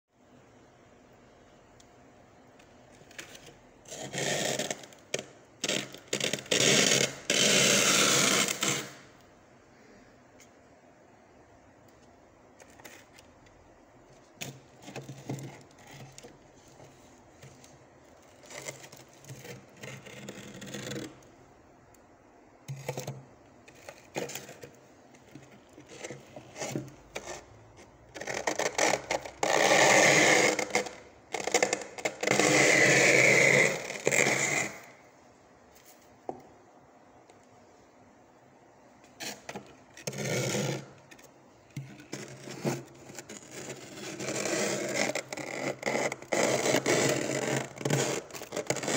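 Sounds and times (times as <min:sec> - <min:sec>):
plastic container scraping frost: 0:03.1 - 0:09.1, 0:14.2 - 0:21.2, 0:22.7 - 0:35.0, 0:39.0 - 0:48.9.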